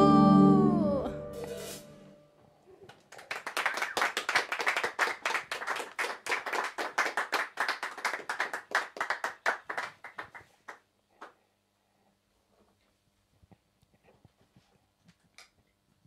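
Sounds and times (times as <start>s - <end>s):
people clapping: 2.9s - 11.4s.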